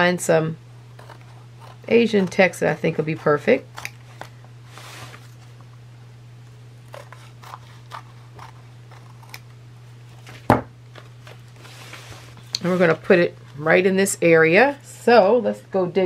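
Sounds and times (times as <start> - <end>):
steady low hum: 0.0 - 16.0
scissors cutting paper: 1.0 - 4.3, 6.9 - 9.5.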